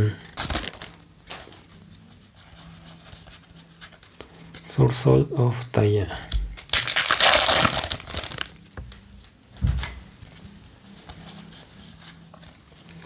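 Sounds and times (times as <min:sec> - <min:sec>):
foil pack crinkling and tearing: 0:00.4 - 0:01.0, 0:06.6 - 0:08.6
cards rustling: 0:00.4 - 0:02.1, 0:06.6 - 0:08.6.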